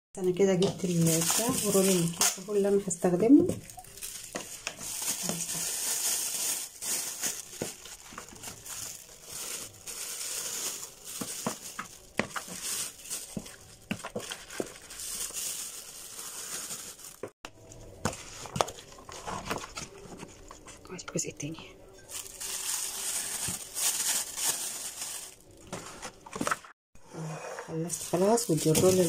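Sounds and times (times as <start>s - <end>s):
plastic bag crinkling: 0.8s - 2.8s, 3.5s - 17.4s, 22.1s - 26.8s, 27.9s - 29.0s.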